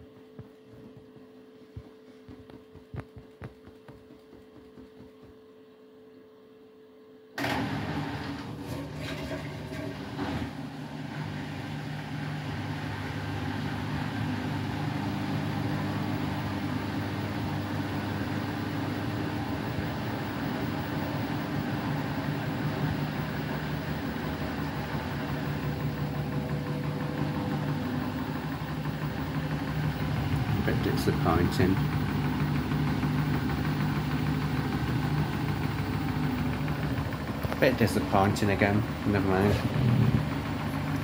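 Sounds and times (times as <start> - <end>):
washing machine drain pump humming: 0.0 - 41.0.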